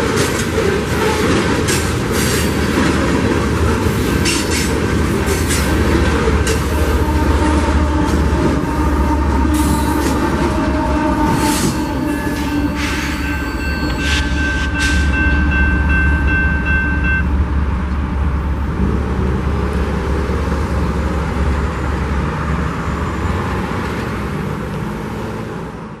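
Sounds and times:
freight train rumbling: 0.0 - 26.0
crossing warning bell ringing: 6.4 - 18.4.

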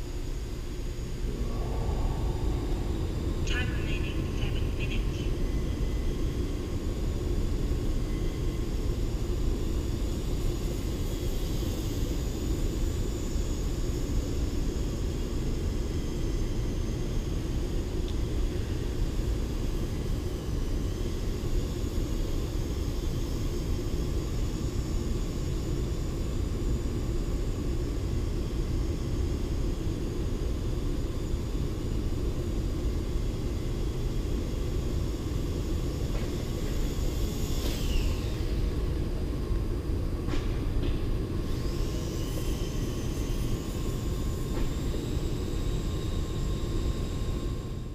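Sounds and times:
steady low rumble: 0.1 - 5.8
small electric motor whine: 5.2 - 47.9.

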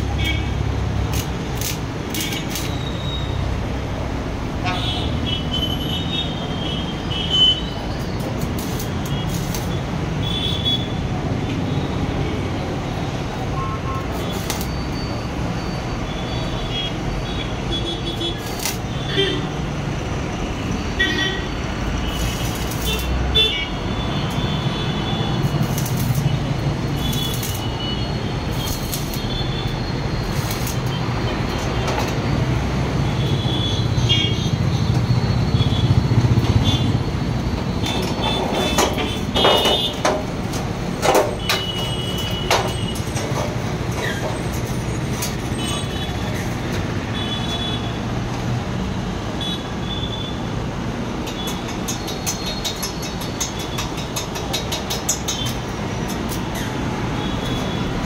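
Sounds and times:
crackling arc welding: 0.0 - 3.7, 6.9 - 11.1, 13.4 - 15.6, 17.7 - 20.0, 21.0 - 34.7, 35.4 - 47.9, 51.0 - 58.0
street traffic: 0.0 - 58.0.

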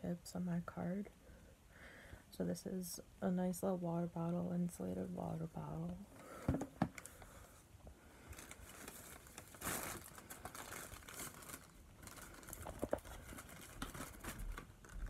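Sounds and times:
plastic bag crinkling: 8.2 - 15.0.

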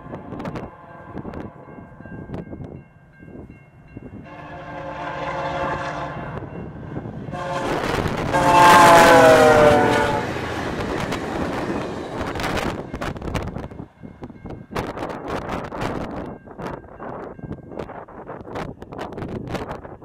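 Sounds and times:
locomotive air horn blasts: 0.0 - 1.7, 4.2 - 6.6, 7.3 - 10.5
train cars rumbling on rails: 0.0 - 20.0.

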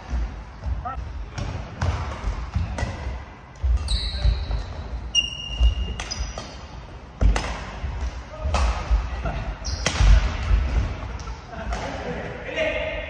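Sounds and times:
shoes squeaking: 3.6 - 6.9, 9.6 - 10.2
racket striking shuttlecock: 5.6 - 9.0, 9.7 - 10.5.

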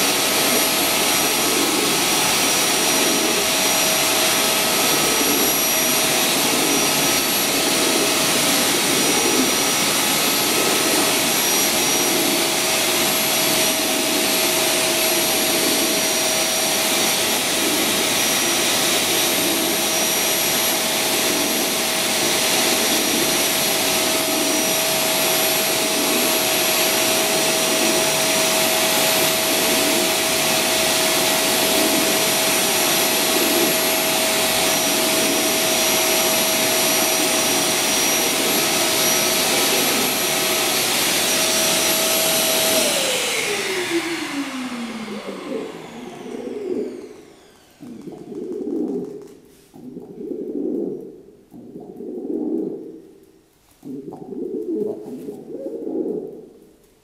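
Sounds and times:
vacuum cleaner running: 0.0 - 51.0.

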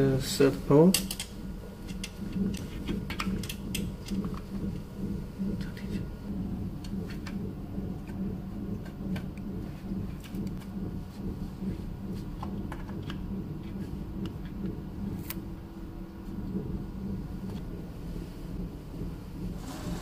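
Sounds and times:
low rumbling background noise: 0.0 - 20.0.

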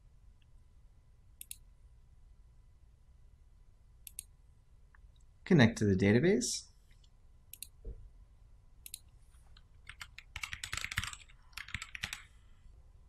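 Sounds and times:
computer keyboard typing: 9.8 - 12.4.

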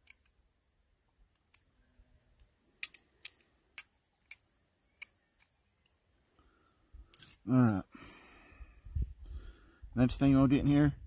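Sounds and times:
sharp metallic clicks of pistol parts: 0.0 - 0.4, 2.4 - 6.0.

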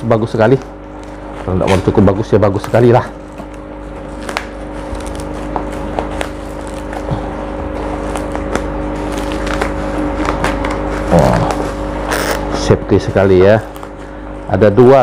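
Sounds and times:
steady hum: 0.0 - 15.0
plastic packaging crinkling: 0.8 - 12.0.

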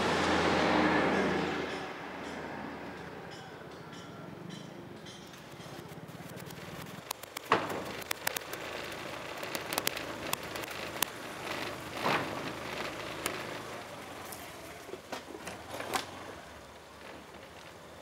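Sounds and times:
sharp clicks and knocks: 4.5 - 13.9
steady hiss: 6.0 - 18.0.

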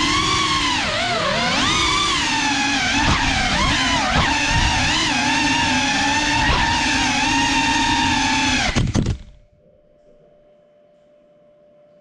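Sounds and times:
quadcopter motors whining: 0.0 - 9.4.

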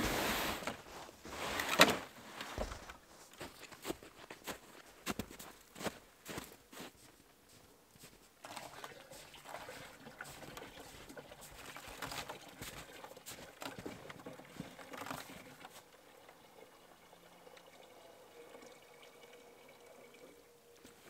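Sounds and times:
footsteps crunching in snow: 0.0 - 8.3, 9.1 - 15.8
liquid trickling into a plastic jug: 8.4 - 21.0.

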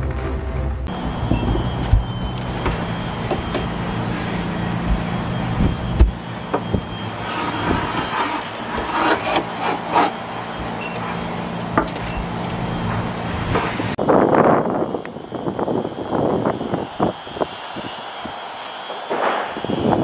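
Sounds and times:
steady low hum: 0.0 - 8.9.

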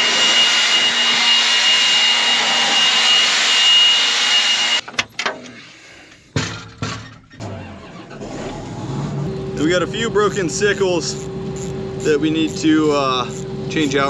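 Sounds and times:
leaf blower whining: 0.0 - 4.8, 9.2 - 14.0.

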